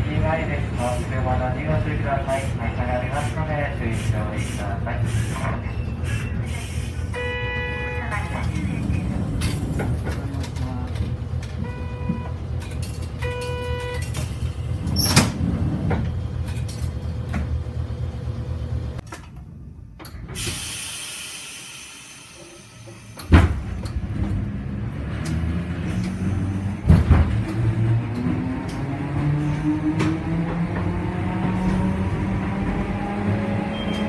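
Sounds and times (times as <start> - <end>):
tram low hum: 0.0 - 34.0
tram rumbling: 0.0 - 34.0
doors sliding shut: 12.2 - 17.6
short electronic beep: 33.7 - 34.0.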